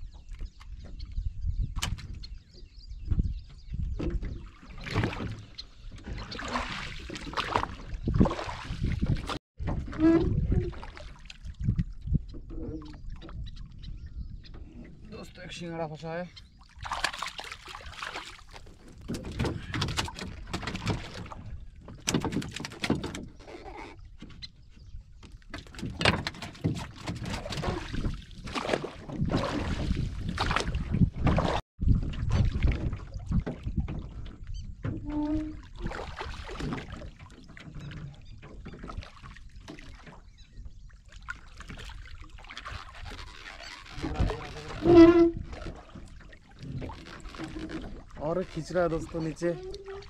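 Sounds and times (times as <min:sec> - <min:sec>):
water splashing and sloshing: 0:00.0 - 0:50.0
net knocking against hull: 0:16.8 - 0:23.3, 0:25.5 - 0:31.6.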